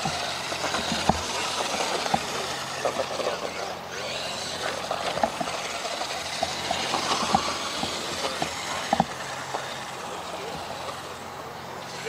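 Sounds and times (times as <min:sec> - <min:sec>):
toy truck driving on dirt: 0:00.0 - 0:12.0
tyres clicking and knocking: 0:00.0 - 0:12.0.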